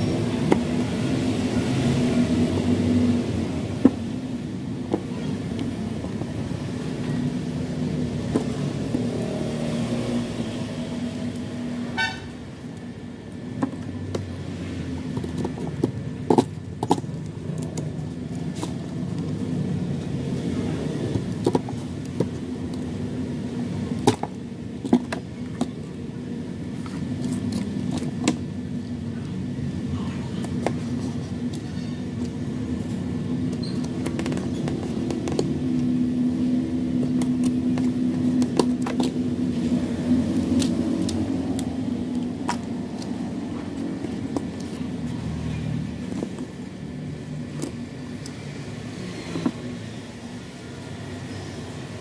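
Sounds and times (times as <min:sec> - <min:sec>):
scissors snapping wooden sticks: 0:40.3 - 0:43.2.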